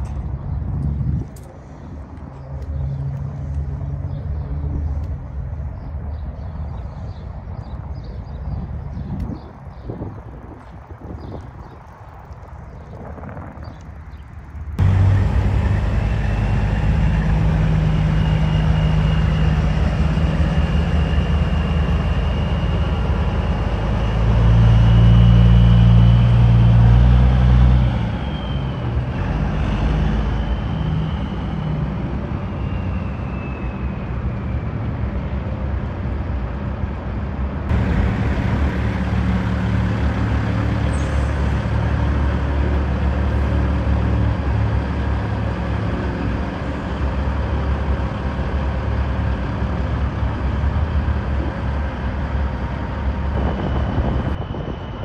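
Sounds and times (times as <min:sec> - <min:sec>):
diesel truck engines running: 0:08.6 - 0:35.5, 0:36.4 - 0:55.0
faint high whistle-like tone: 0:32.4 - 0:34.1.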